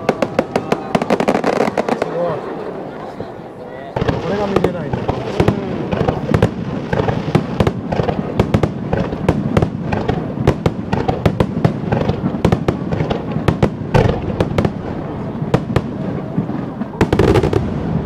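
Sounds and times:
fireworks bangs and crackles: 0.0 - 2.6, 3.9 - 18.0.

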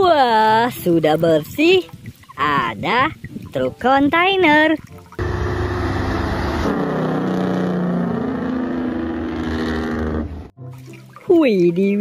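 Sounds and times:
truck engine accelerating: 5.2 - 10.6.

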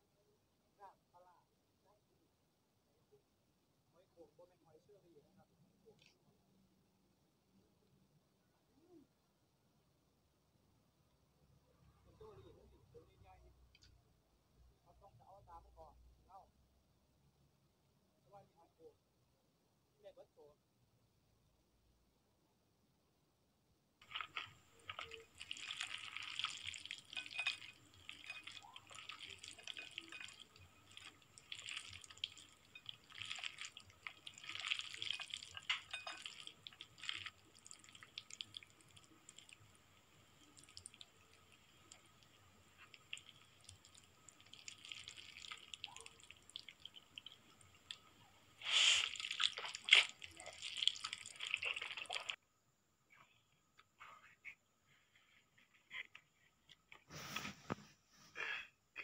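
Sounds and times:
slurping and chewing noodles: 24.0 - 52.4.

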